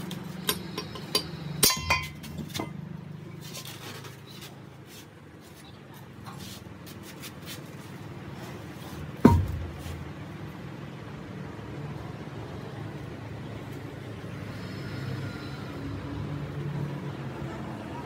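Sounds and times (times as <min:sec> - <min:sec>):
loud ringing metal knock: 0:09.2 - 0:09.7.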